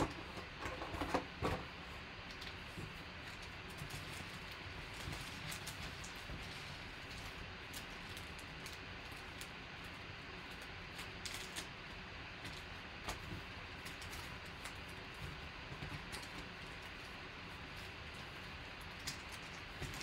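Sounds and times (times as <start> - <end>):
foil card packs crinkling: 10.5 - 11.8.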